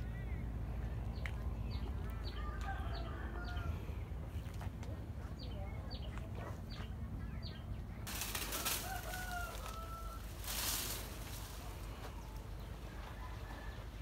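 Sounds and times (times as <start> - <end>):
steady low rumble: 0.0 - 14.0
rooster crowing: 2.4 - 3.8, 8.4 - 10.9.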